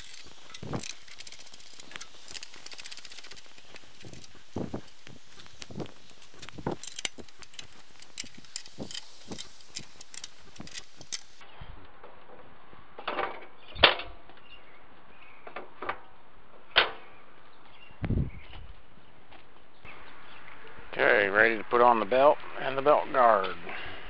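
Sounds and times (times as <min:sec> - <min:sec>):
metallic clicks and clinks: 0:00.0 - 0:05.1, 0:06.3 - 0:11.4.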